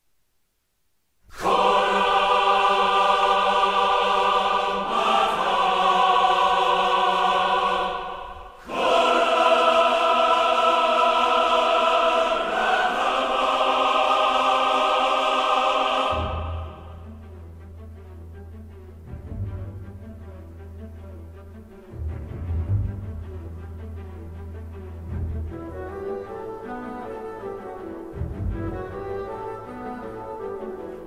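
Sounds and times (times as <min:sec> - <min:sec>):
choir singing held chords: 0:01.3 - 0:17.2.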